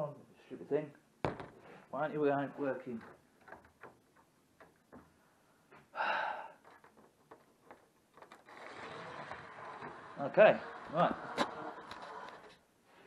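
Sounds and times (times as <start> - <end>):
person exhaling: 5.9 - 6.6.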